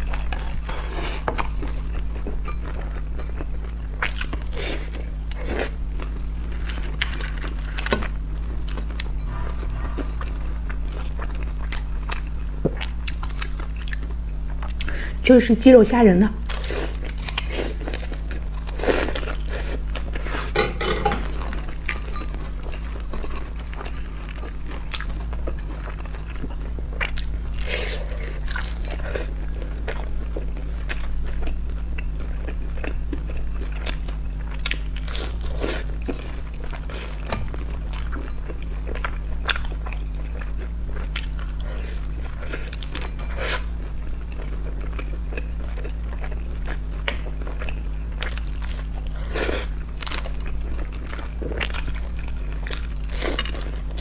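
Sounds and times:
low hum: 0.0s - 14.8s
chewing crisp dumplings: 0.0s - 15.2s, 16.4s - 54.0s.

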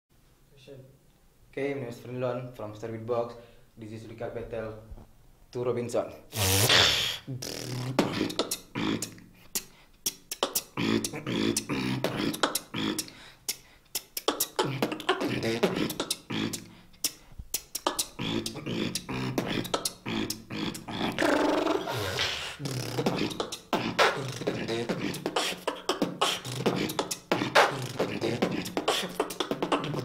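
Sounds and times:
person beatboxing: 6.3s - 30.0s.

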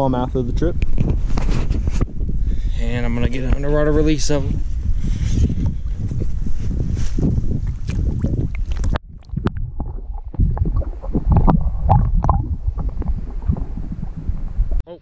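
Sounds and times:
underwater gurgling and rumbles: 0.7s - 14.9s
water sloshing and splashing: 7.6s - 14.8s.

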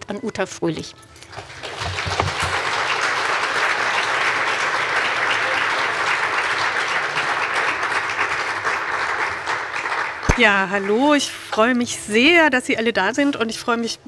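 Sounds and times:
audience applause: 1.3s - 11.1s.

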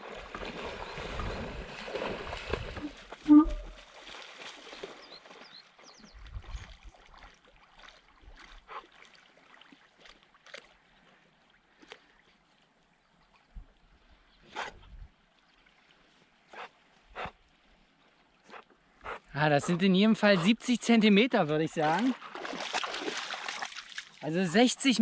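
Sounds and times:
water splashing and gurgling: 0.0s - 12.4s, 19.6s - 25.0s.

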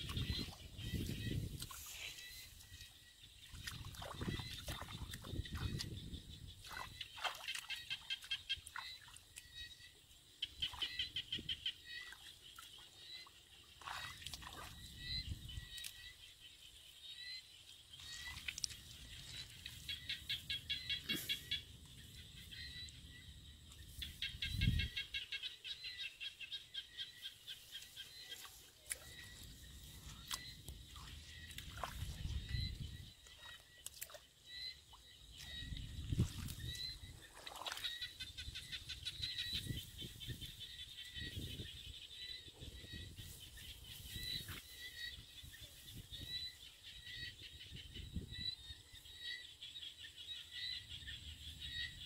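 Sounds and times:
rapid pulsed chirping calls: 0.0s - 52.0s
feet squelching in mud and water: 3.5s - 9.7s, 13.8s - 15.0s, 18.0s - 20.0s, 27.8s - 34.6s, 35.4s - 38.3s.

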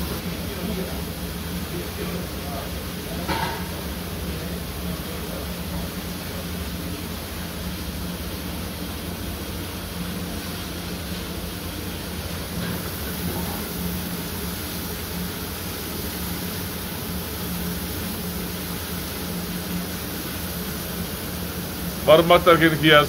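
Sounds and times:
coffee roasting machine running: 0.0s - 23.0s.

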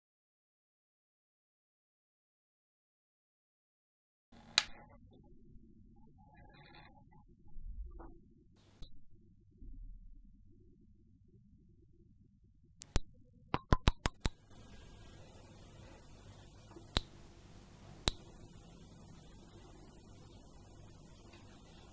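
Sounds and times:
dial clicks: 4.6s - 12.8s
very high-pitched steady tone: 4.7s - 12.8s.

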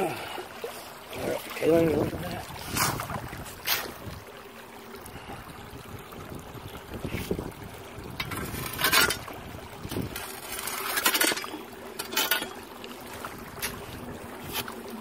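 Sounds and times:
creek water over gravel: 0.0s - 15.0s
wind on microphone: 1.7s - 4.3s, 5.1s - 10.3s.

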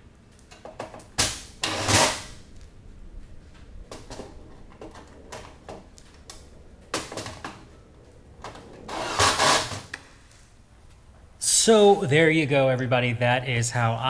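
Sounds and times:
light clacks and knocks: 0.3s - 11.0s
rustling scraping bursts: 1.1s - 11.2s.

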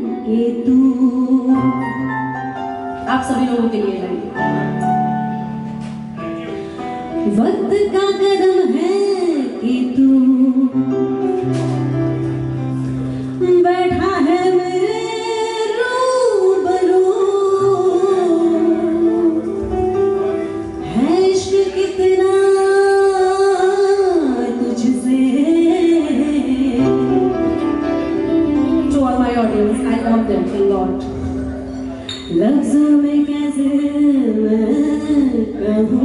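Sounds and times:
woman singing: 0.0s - 2.4s, 7.2s - 11.3s, 13.4s - 19.7s, 20.8s - 27.6s, 32.3s - 36.0s
keyboard: 0.0s - 36.0s
cajon: 11.3s - 13.2s.

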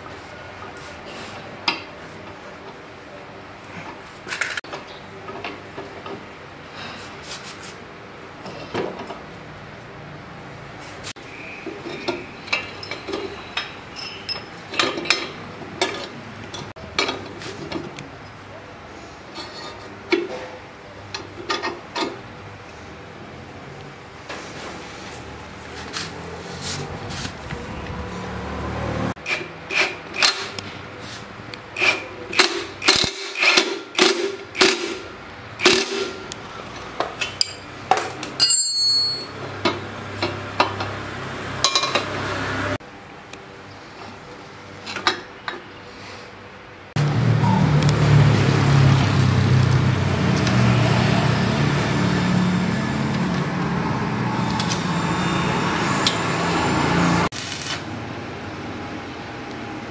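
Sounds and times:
wrench clinking on bolts: 38.4s - 39.4s
arc welding crackling hiss: 57.3s - 57.9s.

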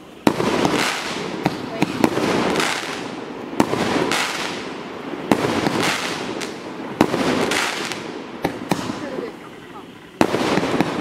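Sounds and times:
firework hissing rush: 0.0s - 11.0s
firework shot reports: 5.3s - 11.0s.

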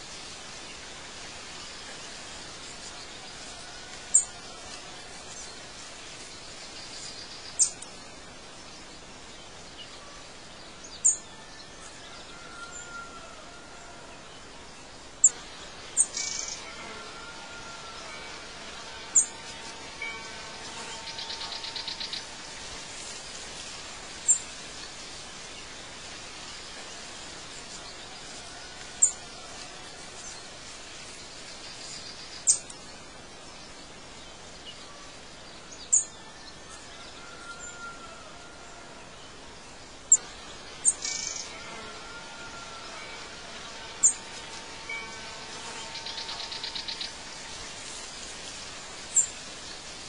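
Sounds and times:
steady hiss: 0.0s - 50.0s.

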